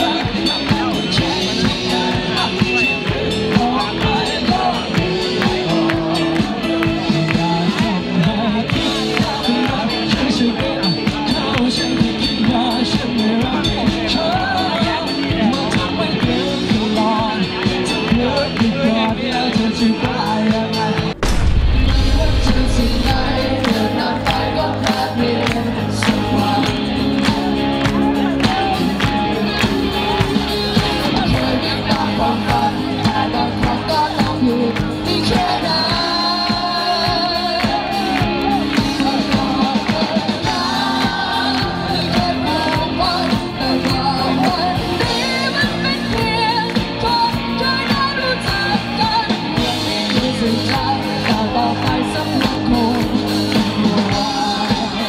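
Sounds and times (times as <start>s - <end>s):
live band playing: 0.0s - 55.0s
person singing: 15.5s - 55.0s.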